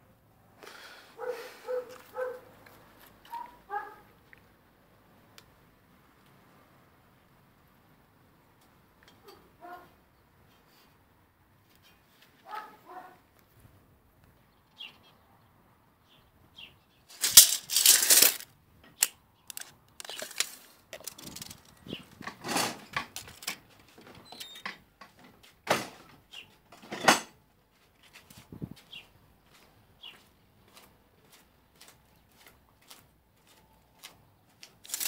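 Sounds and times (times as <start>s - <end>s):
rustling and handling noise: 17.1s - 24.3s, 34.6s - 35.0s.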